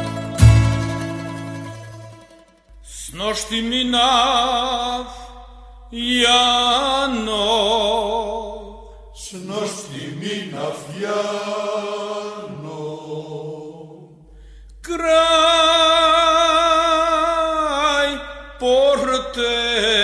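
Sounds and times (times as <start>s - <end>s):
male choir singing: 9.2s - 14.3s.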